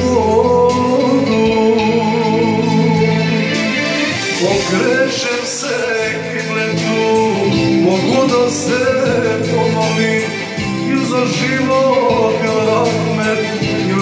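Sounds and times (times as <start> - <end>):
instrumental music with guitar: 0.0 - 14.0
man singing into microphone: 0.0 - 14.0.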